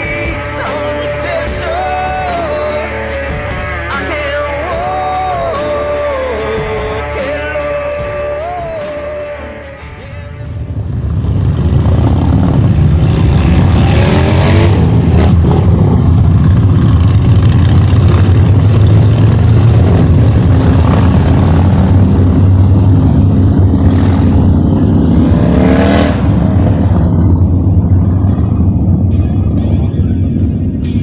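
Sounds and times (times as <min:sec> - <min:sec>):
motorcycle engine revving: 0:09.9 - 0:31.0.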